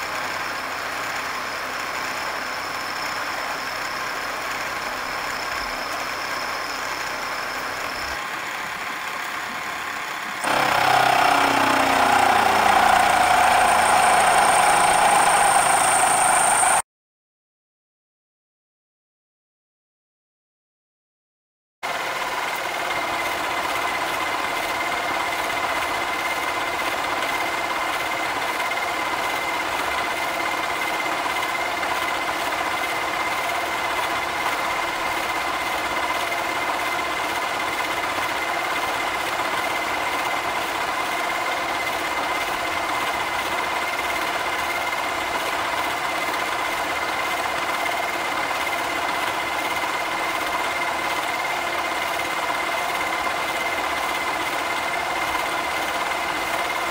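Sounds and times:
milling cutter cutting steel: 0:10.4 - 0:16.8.

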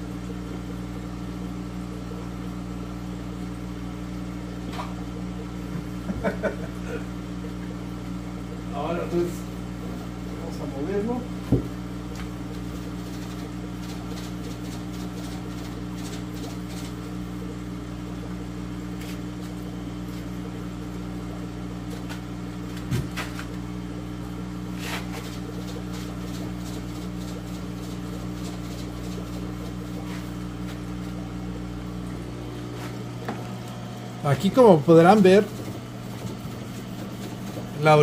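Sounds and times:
low electrical hum: 0:00.0 - 0:38.0
scraping on aquarium wall: 0:11.5 - 0:17.1, 0:18.9 - 0:20.3, 0:21.8 - 0:23.6, 0:24.6 - 0:31.2, 0:32.5 - 0:33.4.

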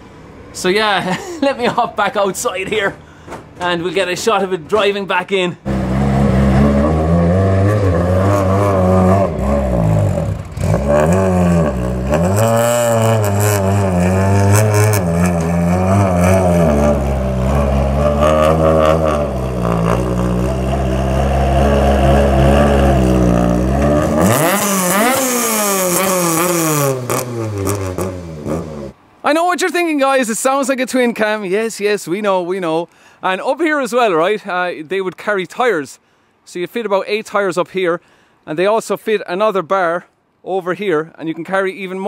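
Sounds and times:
rally car engine revving: 0:05.6 - 0:29.0.

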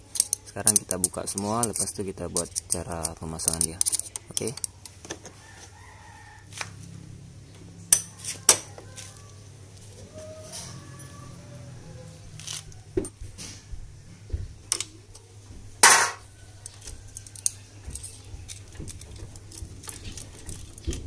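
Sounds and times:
metal tools and parts clinking: 0:00.0 - 0:05.0, 0:07.9 - 0:08.6, 0:15.8 - 0:21.0
loud metallic clank: 0:15.8 - 0:16.2.

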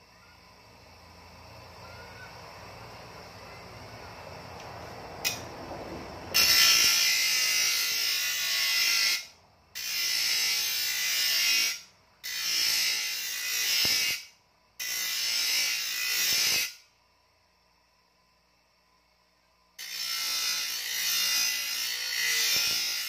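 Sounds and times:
bench grinder grinding metal blade: 0:06.3 - 0:16.8, 0:19.8 - 0:23.0.

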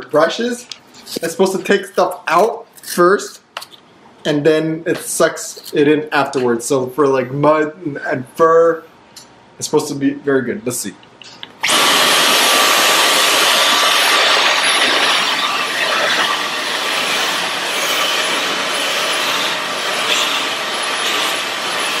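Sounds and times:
cordless vacuum motor rushing: 0:11.6 - 0:22.0.

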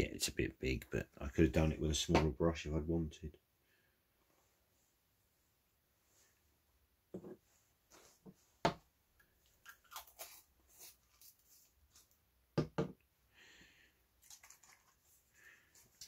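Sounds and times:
paint jars knocking and clicking: 0:12.6 - 0:13.0.

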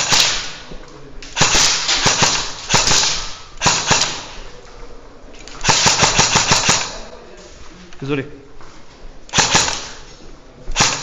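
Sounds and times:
airsoft gunshots echoing in hall: 0:00.0 - 0:04.6, 0:05.4 - 0:07.2, 0:09.3 - 0:11.0.

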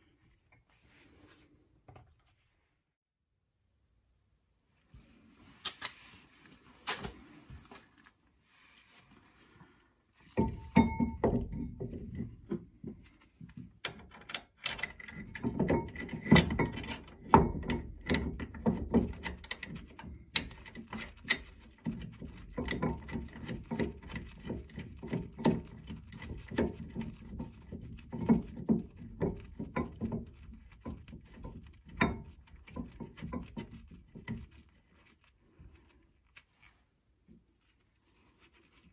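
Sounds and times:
metal clinks and knocks: 0:10.4 - 0:12.6.

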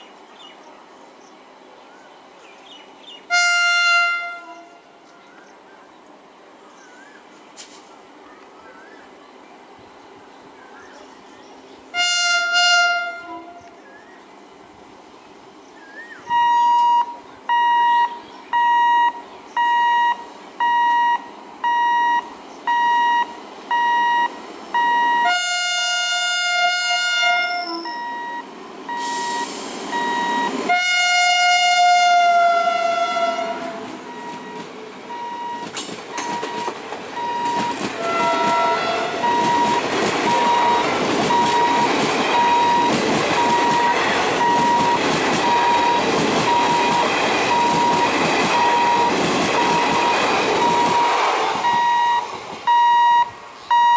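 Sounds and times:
locomotive air horn blasts: 0:03.3 - 0:05.0, 0:11.9 - 0:13.8, 0:16.3 - 0:18.9, 0:24.8 - 0:34.3, 0:37.2 - 0:39.6
train running past rumble: 0:09.7 - 0:53.8
electronic warning beeps: 0:16.3 - 0:25.3, 0:27.7 - 0:30.6, 0:34.0 - 0:37.9, 0:39.2 - 0:53.9.

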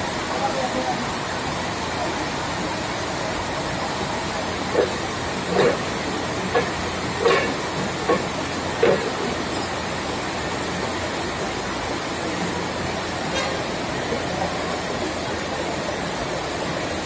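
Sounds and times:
forklift engine running: 0:03.9 - 0:11.5.

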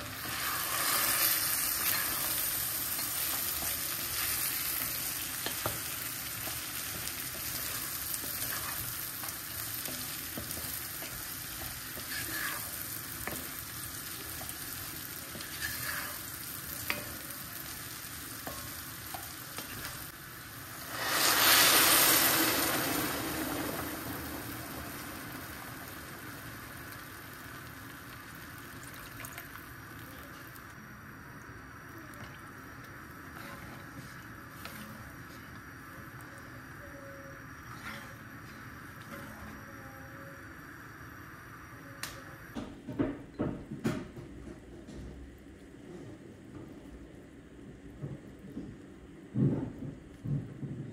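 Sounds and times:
vegetables sizzling in oil: 0:00.0 - 0:42.6
wooden spoon stirring: 0:00.2 - 0:17.5.

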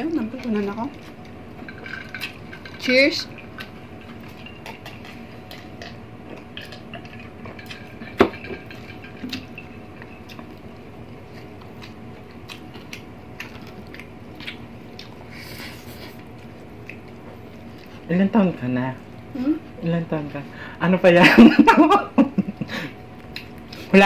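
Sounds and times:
people chewing and biting: 0:00.3 - 0:02.7, 0:03.4 - 0:18.1, 0:22.8 - 0:23.9.

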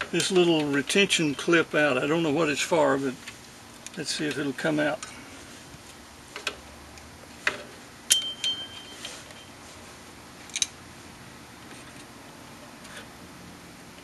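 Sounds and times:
brief metallic ringing: 0:08.1 - 0:09.5.

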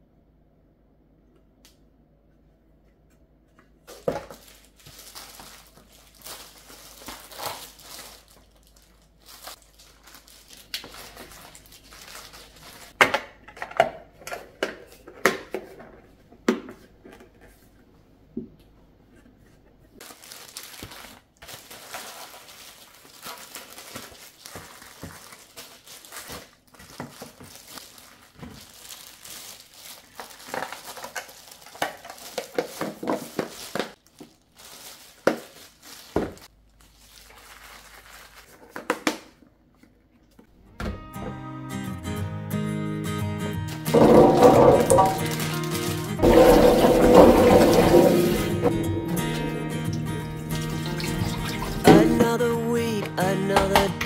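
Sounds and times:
plastic packaging crinkling: 0:03.8 - 0:13.0, 0:20.0 - 0:39.4, 0:43.9 - 0:48.8, 0:50.5 - 0:52.3
plastic containers clacking: 0:31.7 - 0:34.0, 0:43.9 - 0:49.4.

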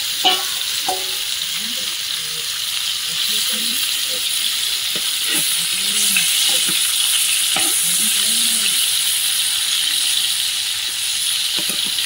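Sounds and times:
fish sizzling in frying pan: 0:00.0 - 0:12.0
metal spatula scraping pan: 0:00.2 - 0:01.4, 0:05.0 - 0:08.1.

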